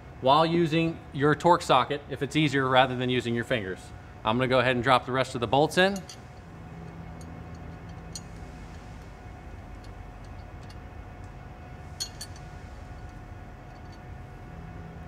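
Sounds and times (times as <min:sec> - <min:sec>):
faint hum: 0:00.0 - 0:15.0
metal bolts clicking: 0:05.9 - 0:08.4, 0:09.7 - 0:11.3, 0:12.0 - 0:14.1.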